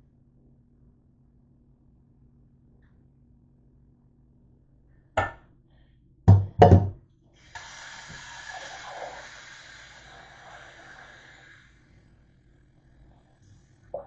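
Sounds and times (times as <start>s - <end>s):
metal pot knocks: 5.2s - 5.4s, 6.3s - 6.9s
faucet running water into pot: 7.4s - 11.8s.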